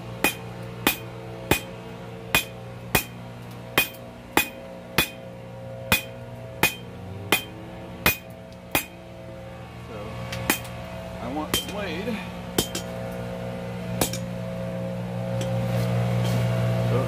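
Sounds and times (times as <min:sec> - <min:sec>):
low hum: 0:00.0 - 0:17.0
hammer striking steel on anvil: 0:00.2 - 0:01.7, 0:02.3 - 0:03.2, 0:03.8 - 0:05.2, 0:05.9 - 0:09.0, 0:10.4 - 0:10.7, 0:11.5 - 0:11.8, 0:12.6 - 0:12.9, 0:14.0 - 0:14.3, 0:15.4 - 0:15.6.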